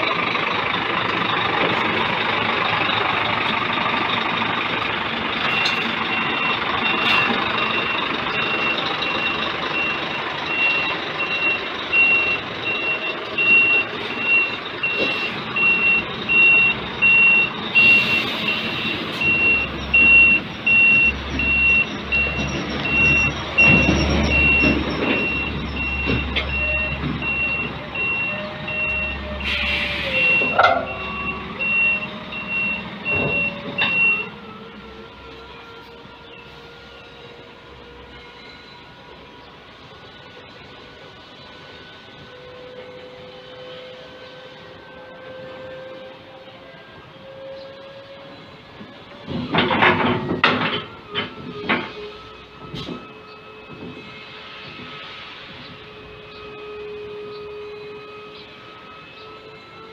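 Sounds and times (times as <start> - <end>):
diesel truck running: 0.0 - 59.9
reversing alarm beeps: 5.4 - 34.8, 47.5 - 59.9.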